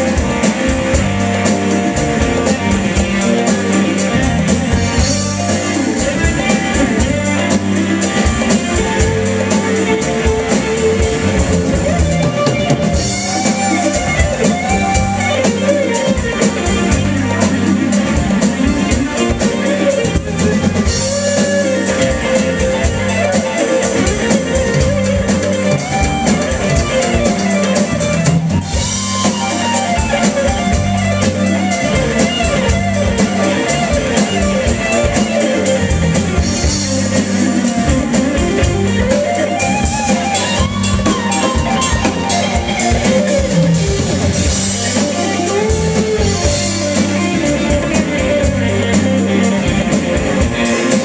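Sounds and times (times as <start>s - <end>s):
lead electric guitar bent notes: 0.0s - 51.0s
live rock band playing: 0.0s - 51.0s.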